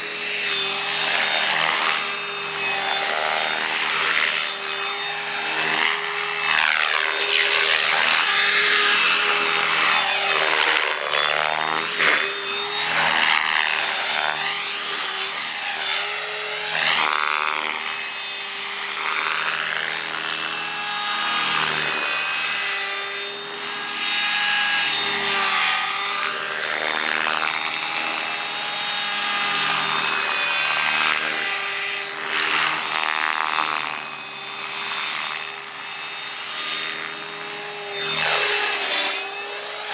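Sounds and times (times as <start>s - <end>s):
electric motor whine: 0.0s - 39.9s
helicopter rotor blades whooshing: 0.0s - 39.9s.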